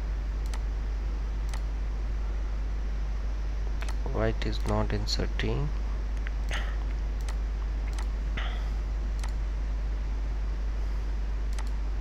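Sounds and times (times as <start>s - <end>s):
steady low hum: 0.0s - 12.0s
computer mouse clicks: 0.4s - 0.6s, 1.5s - 1.7s, 7.2s - 8.1s, 9.2s - 9.4s, 11.5s - 11.8s.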